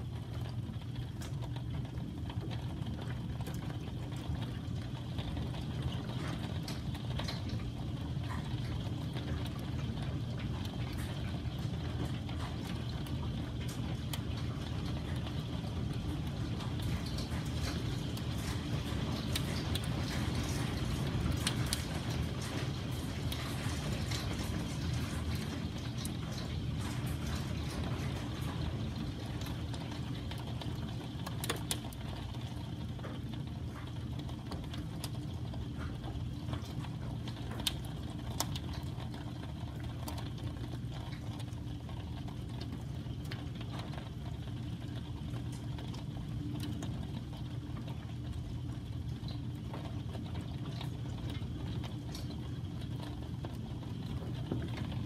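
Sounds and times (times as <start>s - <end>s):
heavy rain rushing: 5.0s - 32.8s
hailstones striking: 16.8s - 29.3s.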